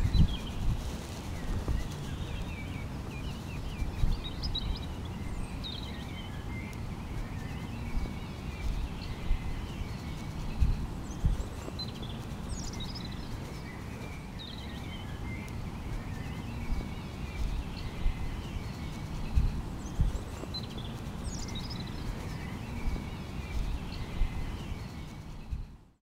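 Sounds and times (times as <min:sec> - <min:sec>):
birds chirping and trilling: 0:00.0 - 0:25.9.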